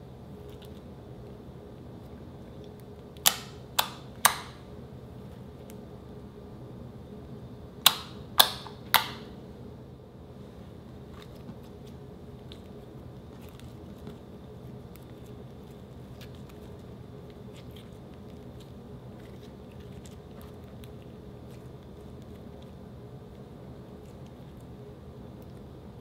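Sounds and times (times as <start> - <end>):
faint steady hum: 0.0 - 26.0
slime sticky clicks and pops: 7.8 - 9.2.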